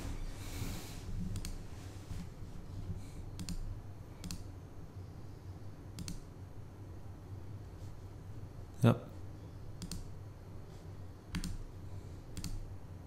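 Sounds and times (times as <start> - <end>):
faint low hum: 0.0 - 13.0
computer mouse clicks: 1.3 - 1.6, 3.3 - 4.5, 5.9 - 6.3, 9.8 - 10.2, 11.3 - 11.6, 12.3 - 12.7.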